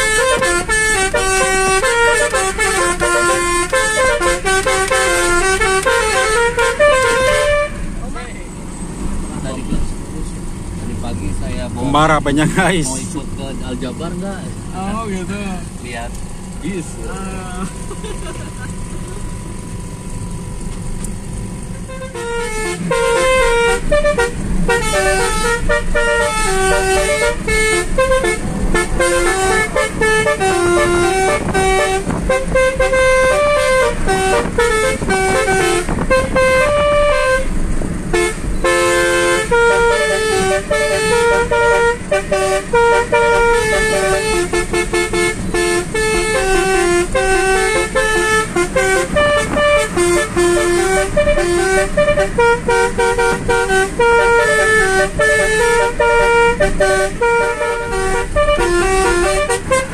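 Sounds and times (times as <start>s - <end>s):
musical car horns playing tune: 0.0s - 8.3s, 21.3s - 59.9s
low hum of moving car: 0.0s - 59.9s.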